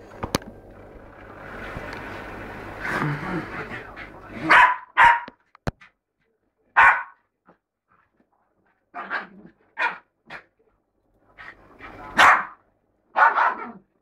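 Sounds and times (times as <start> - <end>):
dog barking: 4.4 - 5.4, 6.8 - 7.2, 9.0 - 10.4, 12.1 - 13.9.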